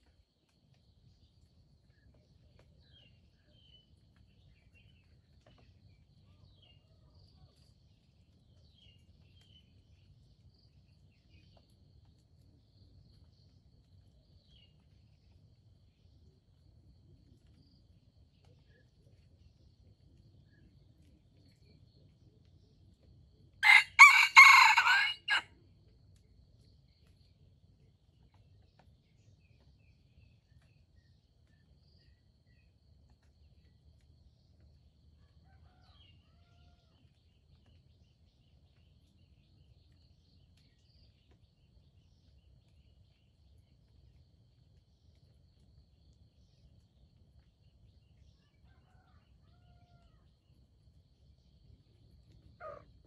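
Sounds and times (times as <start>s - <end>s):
rooster crowing: 23.6s - 25.5s.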